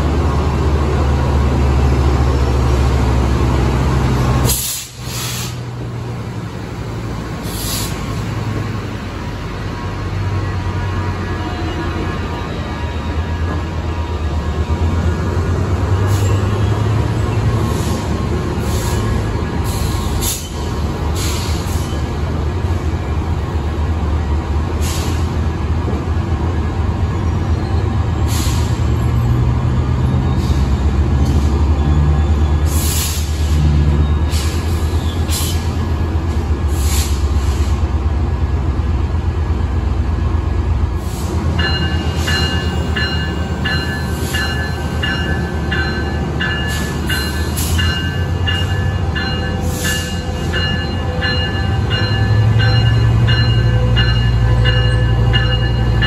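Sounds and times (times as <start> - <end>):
diesel locomotive engine hum: 0.0 - 56.0
air brake hiss: 4.4 - 5.7, 7.4 - 8.1, 17.7 - 22.0, 24.8 - 25.3, 28.3 - 28.9, 32.7 - 33.6, 34.3 - 35.7, 36.7 - 37.8, 41.0 - 41.4
brake air hissing: 4.5 - 5.6, 7.4 - 8.1.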